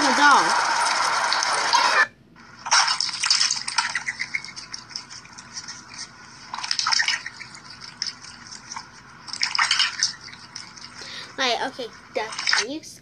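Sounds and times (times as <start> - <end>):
water splashing in metal bowl: 2.6 - 11.2.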